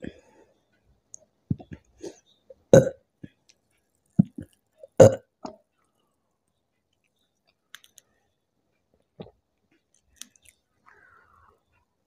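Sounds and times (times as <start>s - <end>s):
woman burping: 2.7s - 3.0s, 5.0s - 5.3s.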